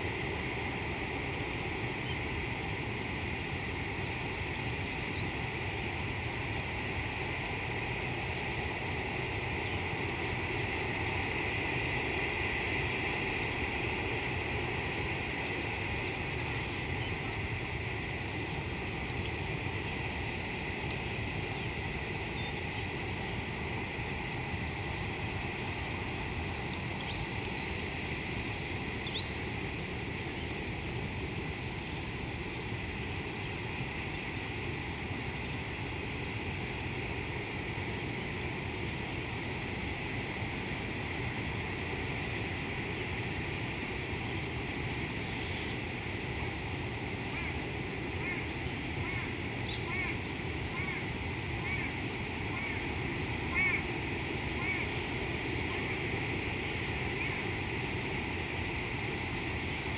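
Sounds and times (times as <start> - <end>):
hiss and low rumble: 0.0 - 59.9.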